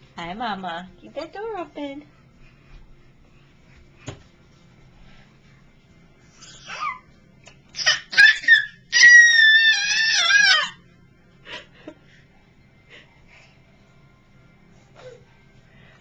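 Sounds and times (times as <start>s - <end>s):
toddler squealing with laughter: 7.8s - 10.8s.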